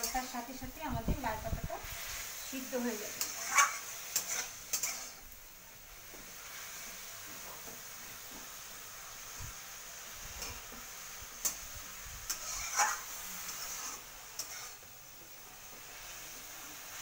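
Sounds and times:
greens sizzling in a pan: 0.0s - 17.0s
spatula scraping metal pan: 2.8s - 5.2s, 12.3s - 14.8s.

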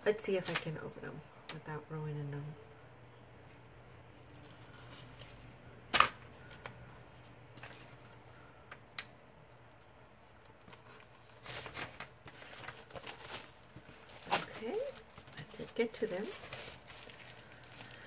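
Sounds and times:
packaging crinkling: 9.7s - 18.0s.

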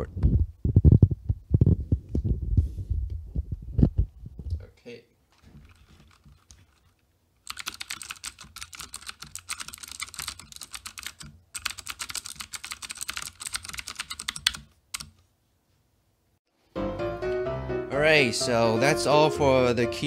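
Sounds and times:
mechanical keyboard typing: 5.6s - 15.2s.

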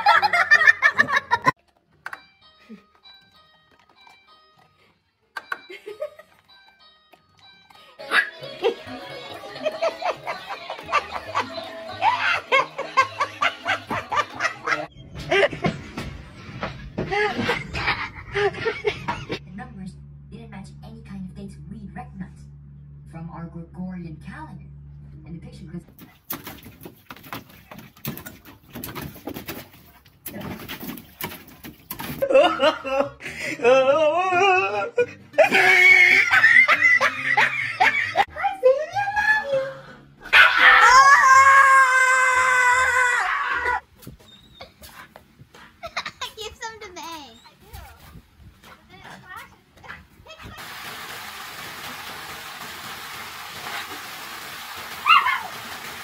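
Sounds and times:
water splashing: 26.0s - 32.2s, 50.4s - 56.0s.

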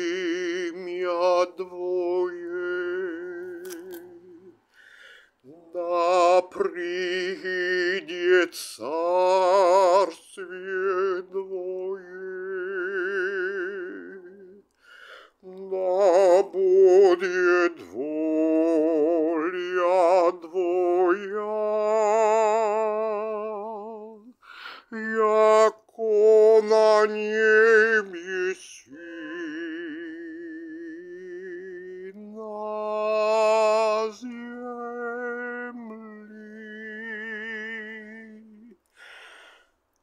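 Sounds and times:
wordless singing with vibrato: 0.0s - 39.4s.

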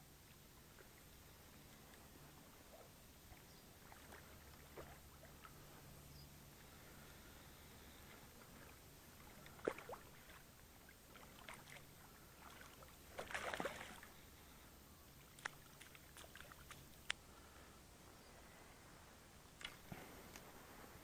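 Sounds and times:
fish splashing in shallow water: 0.7s - 5.8s, 6.6s - 14.5s, 15.2s - 17.1s.

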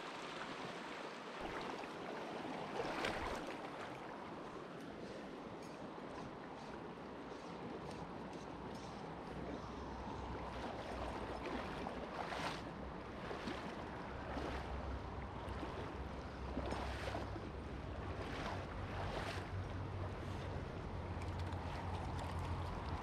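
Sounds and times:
river water rushing: 0.0s - 7.7s, 8.6s - 23.0s
water splashing: 1.3s - 4.2s, 10.2s - 23.0s
wind rumbling on microphone: 6.3s - 23.0s.

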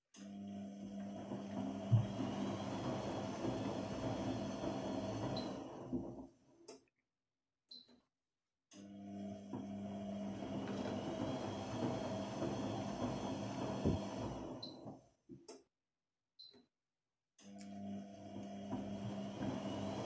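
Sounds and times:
washing machine humming: 0.2s - 6.4s, 8.9s - 15.1s, 17.6s - 20.0s.

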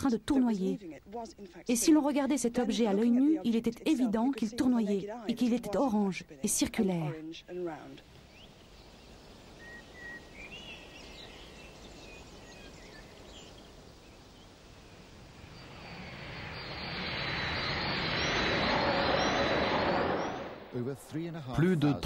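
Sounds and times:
faint bird chirps: 8.0s - 20.8s
high engine whine: 14.2s - 20.9s
jet engines roaring: 14.5s - 20.9s.

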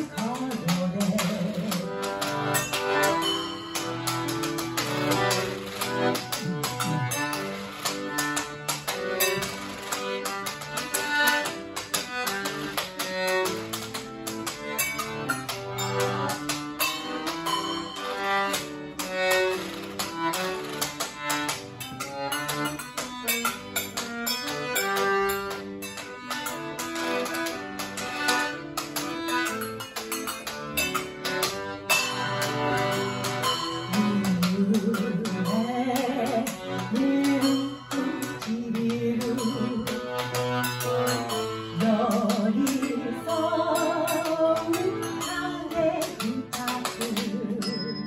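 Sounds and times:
accordion playing a tune: 0.0s - 48.0s
cymbals and bells clattering: 47.6s - 48.0s.

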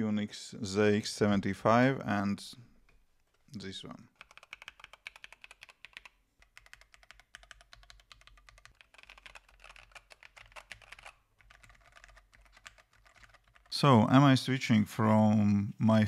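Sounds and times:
fast mechanical keyboard typing: 4.1s - 13.8s.

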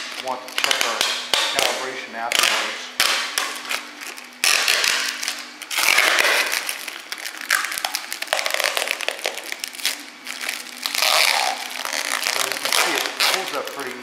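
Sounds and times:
plastic film peeling and crinkling: 0.0s - 14.0s.

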